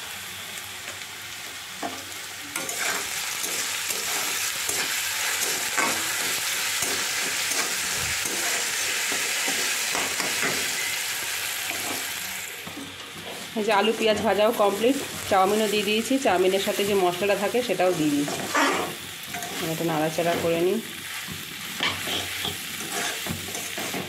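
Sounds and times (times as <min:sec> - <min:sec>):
potatoes sizzling in oil: 0:00.0 - 0:24.0
spatula scraping a pan: 0:02.6 - 0:10.9, 0:17.8 - 0:24.0.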